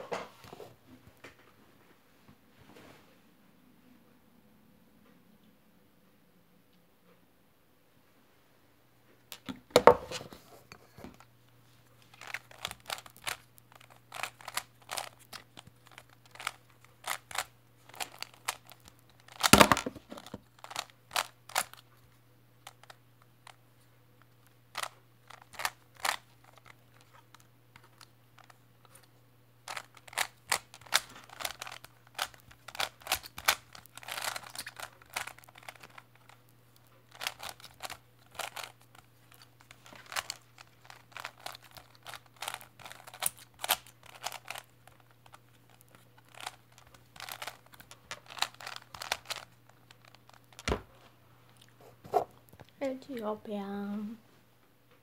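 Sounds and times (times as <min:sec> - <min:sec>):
plastic puzzle cube clicking: 0:12.1 - 0:21.8, 0:24.7 - 0:28.5, 0:29.7 - 0:36.4, 0:37.1 - 0:50.7.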